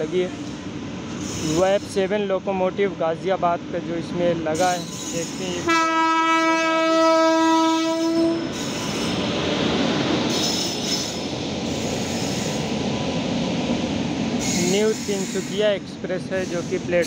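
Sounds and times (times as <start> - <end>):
train wheels rolling on rails: 0.0 - 2.9, 4.3 - 5.7, 7.9 - 17.0
train horn: 5.6 - 8.6.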